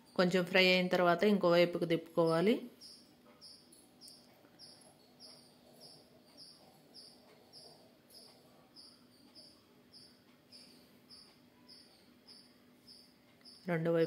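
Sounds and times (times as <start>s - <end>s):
cricket chirping: 2.8s - 13.7s.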